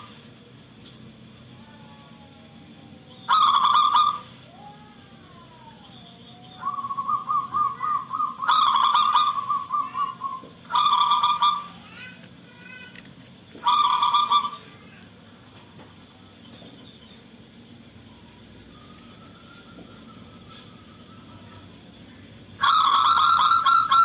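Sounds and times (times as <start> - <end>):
thin high-pitched whine: 0.0 - 24.0
dove cooing: 1.7 - 14.8, 18.7 - 24.0.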